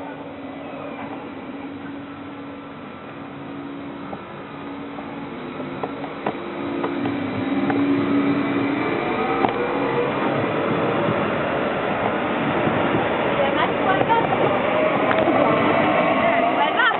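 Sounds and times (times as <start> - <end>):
electric train whine: 0.0 - 16.9
wheels clicking on rails: 4.9 - 16.9.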